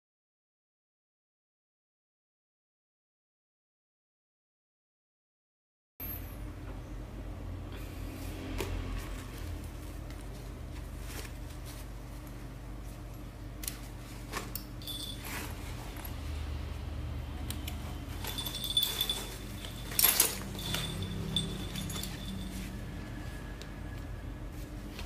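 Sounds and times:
bag straps rustling: 18.1s - 22.7s.

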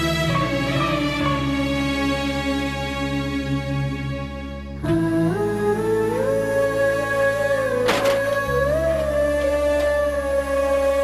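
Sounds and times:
steady low drone: 0.0s - 11.0s
sliding held melody: 4.8s - 11.0s.

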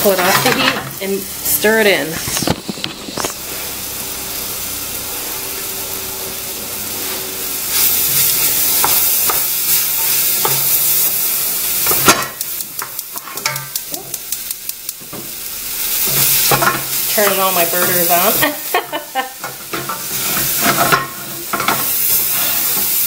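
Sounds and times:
vegetables sizzling in a pot: 0.0s - 23.0s
gas burner igniter clicking: 8.2s - 18.2s.

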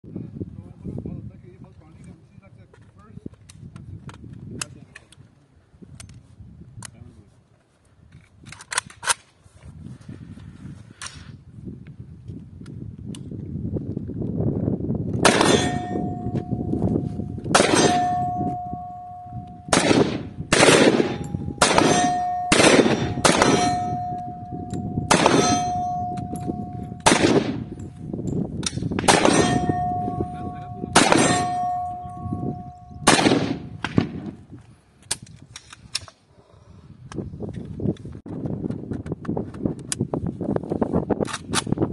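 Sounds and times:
rifle shots: 15.2s - 16.3s, 17.5s - 18.9s, 19.7s - 24.3s, 25.1s - 26.2s, 26.8s - 27.8s, 28.7s - 32.1s, 33.0s - 34.3s
steel plate ringing: 15.4s - 19.7s, 21.0s - 28.0s, 29.2s - 33.1s.

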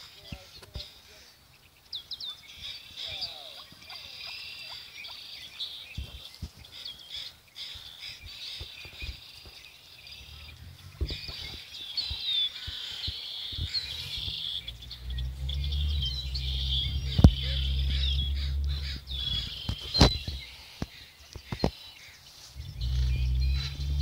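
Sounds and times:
small birds chirping: 0.0s - 24.0s
low rumble: 10.1s - 12.2s, 13.6s - 20.4s, 22.6s - 24.0s.

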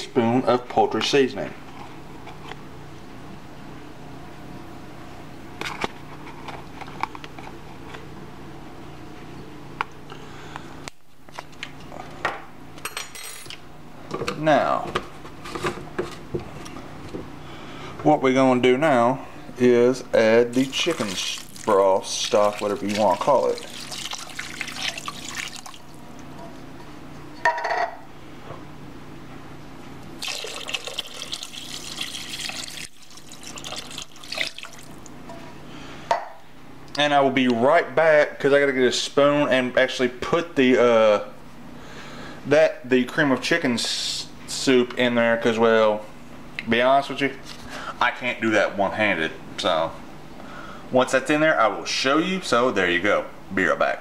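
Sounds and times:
broth pouring and splashing: 20.5s - 26.0s, 30.2s - 35.1s.

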